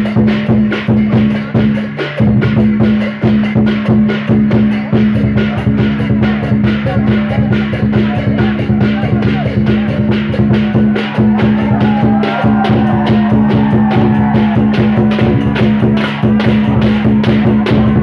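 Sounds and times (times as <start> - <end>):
drum and cymbal music: 0.0 - 18.0.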